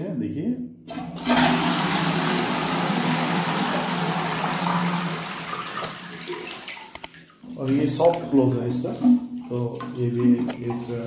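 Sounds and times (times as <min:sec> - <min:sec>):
toilet flushing water rush: 0:00.9 - 0:07.8.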